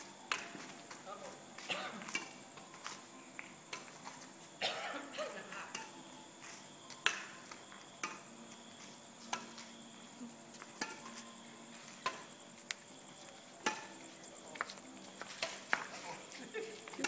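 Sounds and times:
racket hitting shuttlecock: 13.6 - 14.0.

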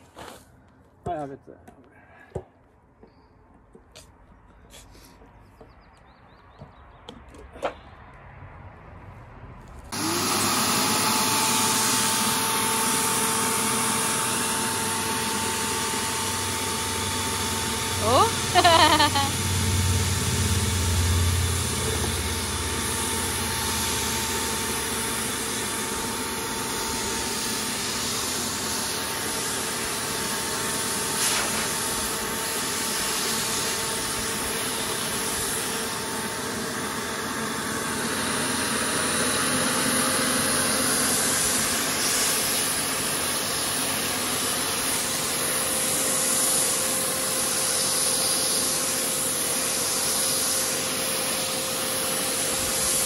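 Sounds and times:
paint sprayer turbine whine: 9.9 - 53.0.

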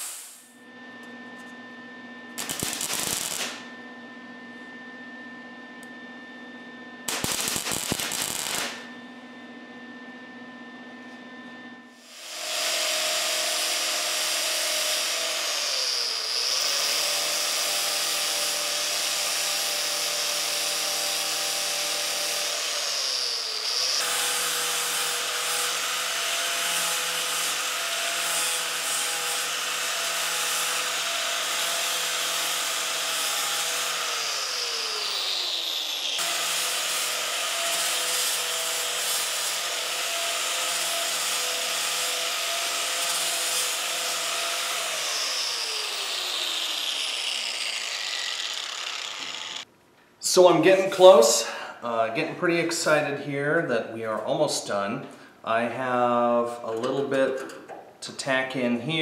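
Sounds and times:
angle grinder grinding metal: 2.4 - 3.6, 12.0 - 49.7.

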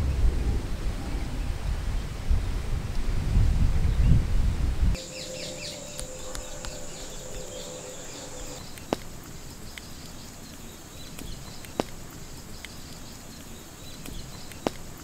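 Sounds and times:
bird chirps: 5.0 - 15.0
insect drone: 5.0 - 15.0
sharp clicks: 5.7 - 15.0.

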